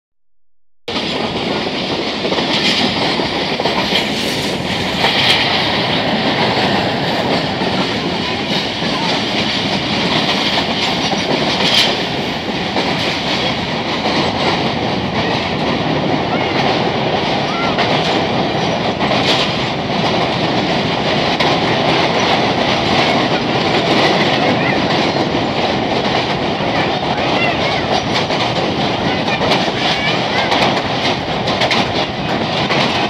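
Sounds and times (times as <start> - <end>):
train wheels rumbling on rails: 0.9 - 33.0.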